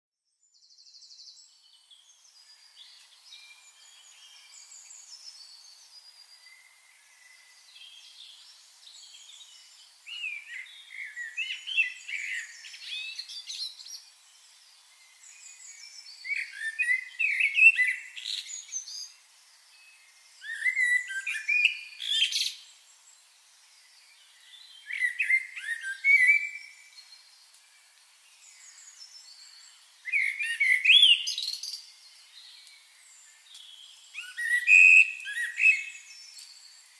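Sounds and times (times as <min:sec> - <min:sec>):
birds chirping and singing: 0:01.0 - 0:23.2, 0:23.8 - 0:27.6, 0:28.3 - 0:36.9.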